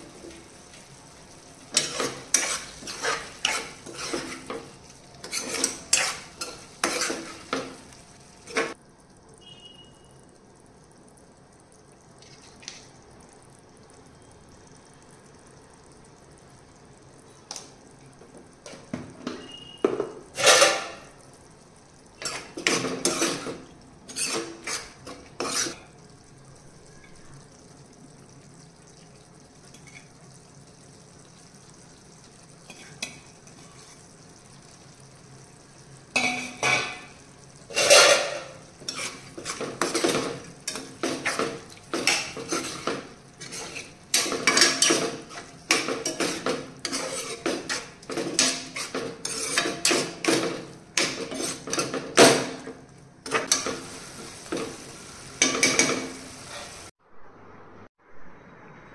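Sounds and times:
metal spoon scraping frying pan: 0:01.6 - 0:08.8, 0:18.7 - 0:21.2, 0:22.2 - 0:25.8, 0:29.7 - 0:30.2, 0:36.2 - 0:54.8, 0:55.4 - 0:56.9.

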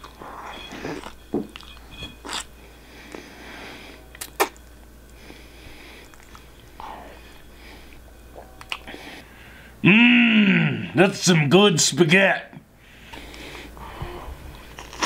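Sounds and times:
messy chewing with smacks: 0:06.0 - 0:06.8.

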